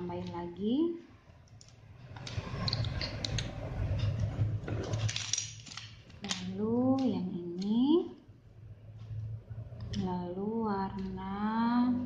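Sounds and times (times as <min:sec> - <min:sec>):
plastic bricks clicking together: 0:04.9 - 0:07.7.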